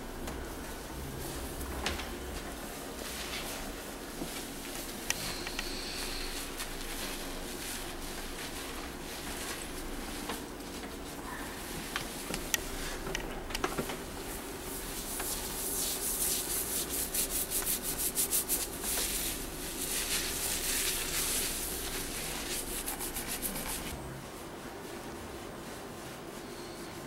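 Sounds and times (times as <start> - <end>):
hands scrubbing wet hair: 14.8 - 23.9.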